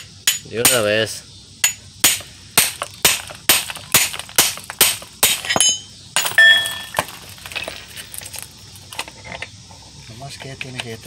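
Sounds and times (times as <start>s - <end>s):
hammer striking chisel on metal: 0.3s - 0.8s, 1.6s - 6.9s
metallic ringing: 5.2s - 7.1s.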